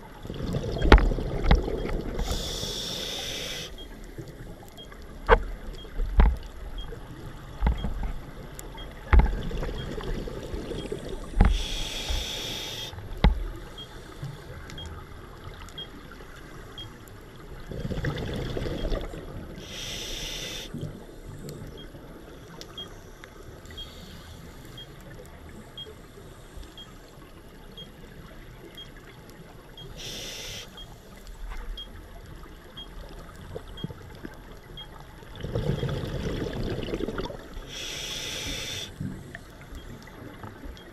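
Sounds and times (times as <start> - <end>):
bubbling exhaled air underwater: 0.2 - 2.6, 17.6 - 19.5, 35.3 - 39.4
scuba regulator hissing inhalations: 2.2 - 3.8, 11.5 - 13.0, 19.6 - 20.8, 30.0 - 30.9, 37.7 - 39.0.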